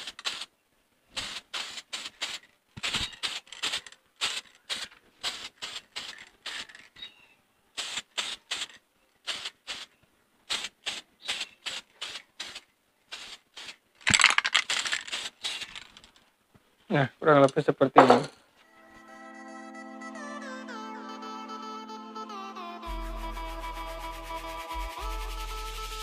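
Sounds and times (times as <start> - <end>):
aerosol spray can hissing: 10.5 - 13.8, 22.8 - 26.0.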